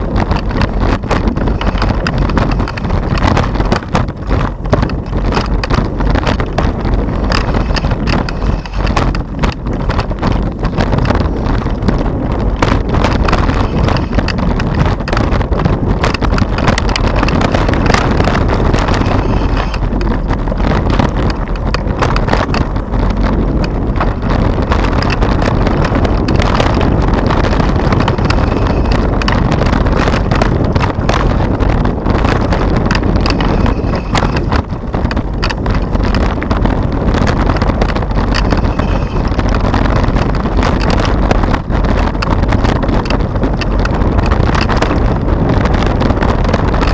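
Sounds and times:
tyres rumbling on trail: 0.0 - 46.9
rattling knocks: 0.2 - 11.7, 12.6 - 36.4.

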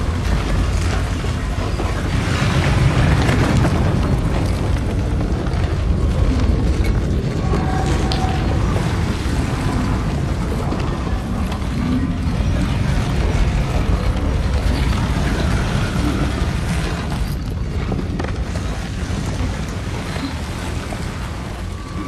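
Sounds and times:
heavy stone grinding over rock: 0.0 - 22.0.

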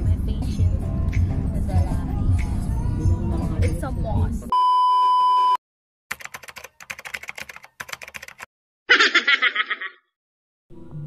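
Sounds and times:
burst of laughter: 8.9 - 10.0.

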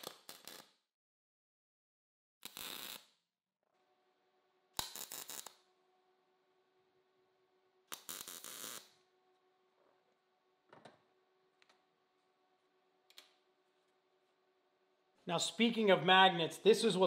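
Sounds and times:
welding arc crackle: 0.0 - 0.7, 2.4 - 3.1, 4.8 - 5.6, 7.9 - 9.0.

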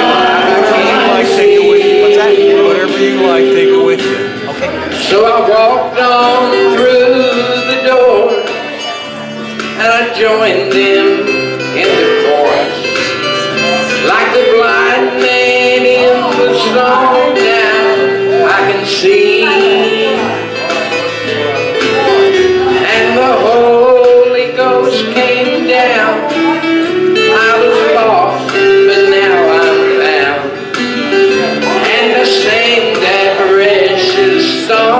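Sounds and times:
gospel group singing: 0.0 - 8.0, 13.7 - 20.5, 27.3 - 34.9
instrumental accompaniment: 0.0 - 34.9.

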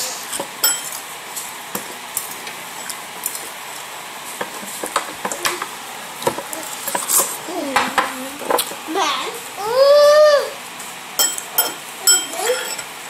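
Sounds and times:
metal spoon clinking against bowl: 0.6 - 1.0, 11.2 - 12.9.

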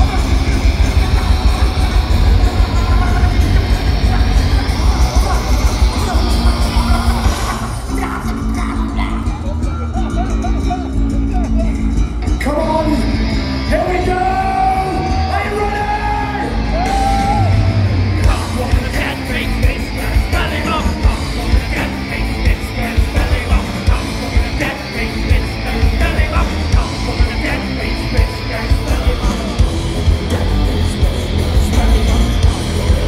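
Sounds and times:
live metal band playing: 0.0 - 33.0
singer yelling a long note: 12.4 - 31.0.

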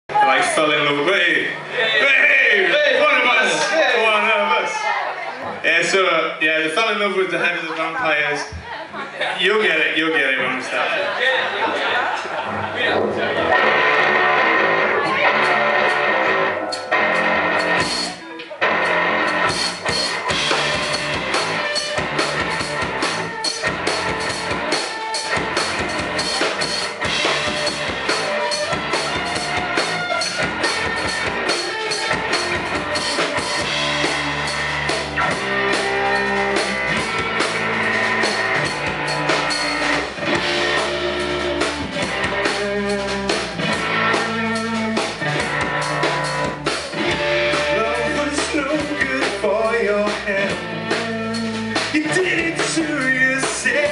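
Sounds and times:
electric guitars: 11.1 - 53.9
drum kit: 12.4 - 53.9
electric bass: 12.4 - 53.9.

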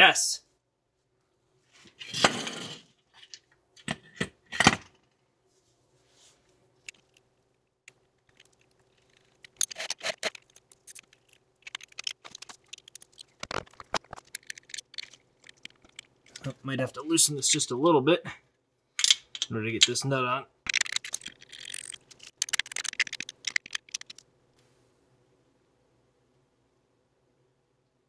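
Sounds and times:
small metal parts clinking: 8.2 - 16.4, 19.0 - 20.0, 20.7 - 24.2.

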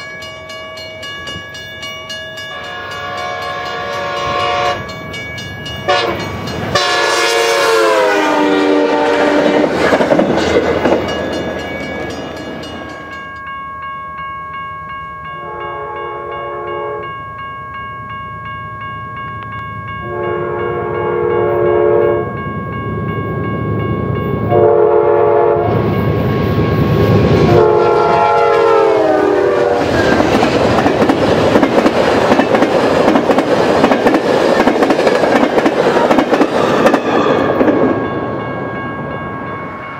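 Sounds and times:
locomotive multi-chime horn: 0.0 - 9.8, 10.4 - 22.6, 23.2 - 30.2
train cars rumbling and clacking: 0.0 - 13.5, 19.4 - 39.9
train chord horn: 2.5 - 5.0, 5.9 - 9.8, 15.4 - 17.1, 20.0 - 22.3, 24.5 - 25.8, 27.4 - 30.2.

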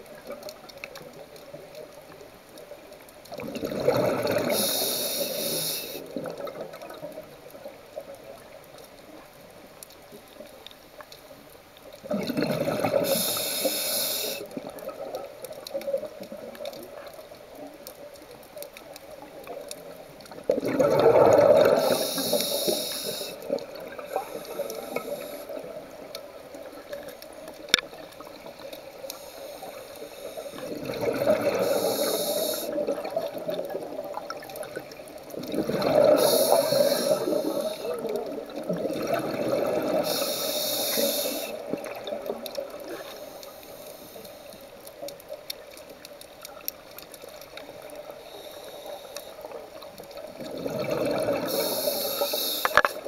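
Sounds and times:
low underwater wash: 0.0 - 53.0
diver breathing through regulator: 4.2 - 6.1, 12.9 - 14.5, 21.4 - 23.5, 29.1 - 32.8, 35.8 - 38.0, 39.8 - 41.7, 51.2 - 53.0.

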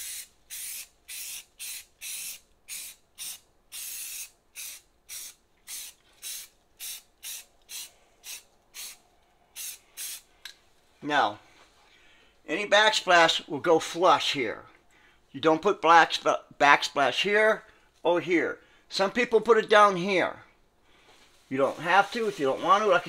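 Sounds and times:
aerosol can spraying: 0.0 - 9.0, 9.6 - 10.3.

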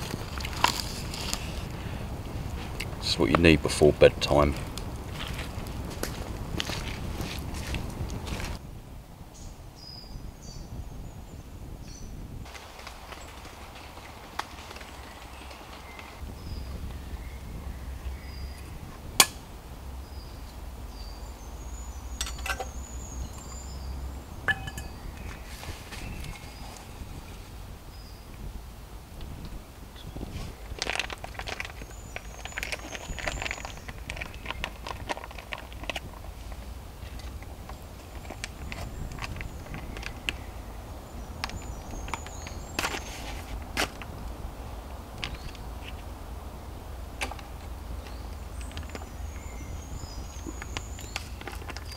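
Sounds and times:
ticks and taps in leaf litter: 12.5 - 16.2, 30.7 - 40.5, 41.4 - 44.4, 45.2 - 46.1, 47.2 - 49.3, 50.3 - 51.9
metal cookware clinking: 24.5 - 25.0.

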